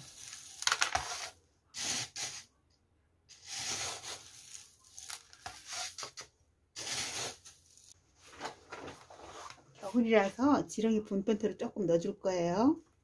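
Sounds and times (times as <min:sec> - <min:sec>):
gravel potting mix rustling: 0:00.0 - 0:02.5, 0:03.3 - 0:06.2.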